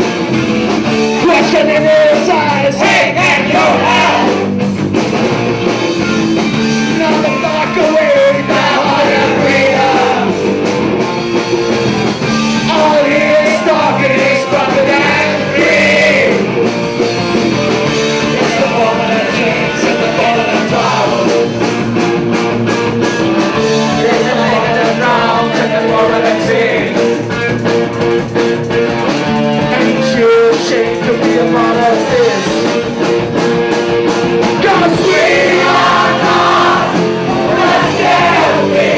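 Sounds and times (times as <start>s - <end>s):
live rock band with guitar: 0.0s - 38.9s
people singing into microphones: 1.2s - 4.5s, 7.0s - 10.6s, 12.6s - 16.6s, 18.0s - 21.6s, 23.6s - 27.3s, 34.4s - 38.9s.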